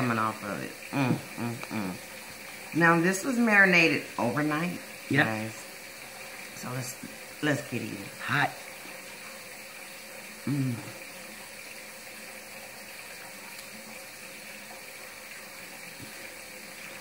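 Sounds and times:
woman humming with enjoyment: 0:00.9 - 0:02.0, 0:10.5 - 0:11.0.

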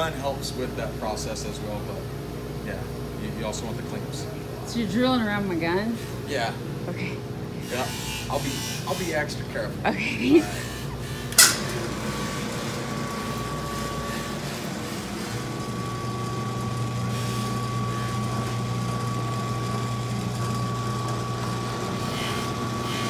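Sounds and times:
drill press motor whining: 0:10.2 - 0:23.0.

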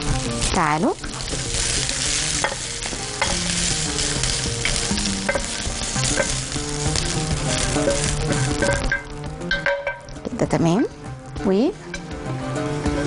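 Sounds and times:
food sizzling in hot oil: 0:00.0 - 0:13.0.

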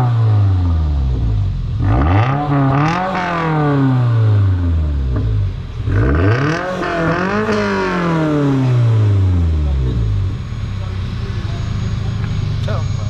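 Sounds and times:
car engine revving: 0:00.0 - 0:13.0.

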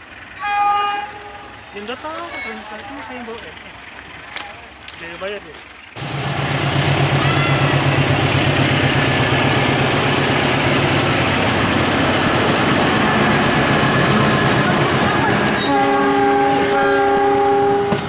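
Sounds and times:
locomotive passing at speed: 0:00.0 - 0:18.0
train wheels rolling on rails: 0:00.0 - 0:18.0
multi-tone train horn: 0:00.4 - 0:01.6, 0:14.0 - 0:18.0.

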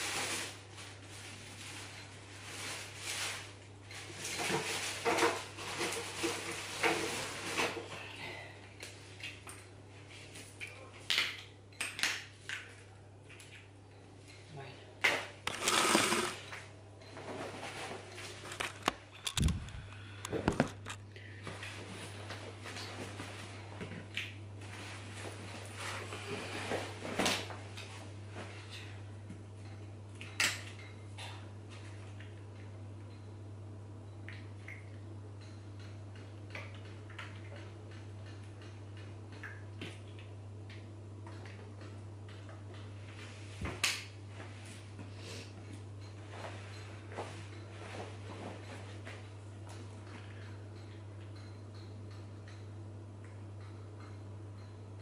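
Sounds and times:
steady low hum: 0:00.0 - 0:55.0
laundry rustling: 0:17.2 - 0:18.8.

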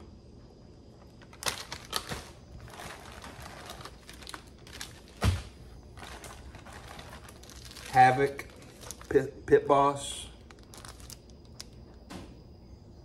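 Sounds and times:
plastic packages rustling: 0:01.0 - 0:12.0
thump: 0:12.1 - 0:12.4.

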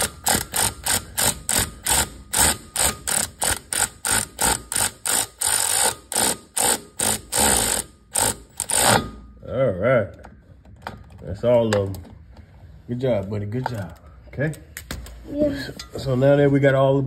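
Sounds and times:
power ratchet bursts: 0:00.0 - 0:09.2.

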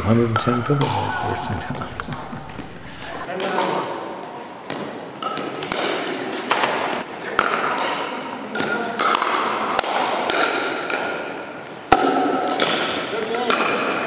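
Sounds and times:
ball bouncing on wooden floor: 0:00.2 - 0:03.2
paddles hitting plastic ball: 0:04.6 - 0:14.0
sneaker squeaks: 0:07.0 - 0:07.8, 0:09.7 - 0:11.1, 0:12.1 - 0:13.3.

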